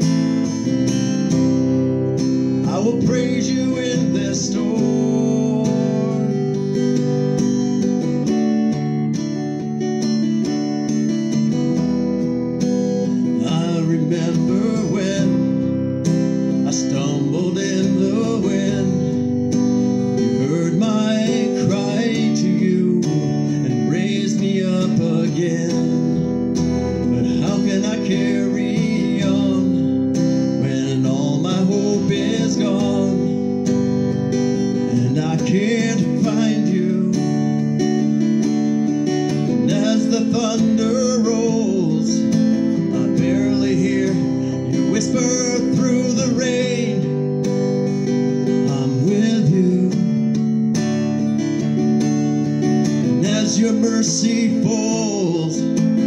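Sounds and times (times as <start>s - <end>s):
acoustic guitar strumming: 0.0s - 56.0s
man singing: 2.5s - 7.1s, 13.0s - 38.4s, 39.3s - 50.7s, 53.0s - 56.0s.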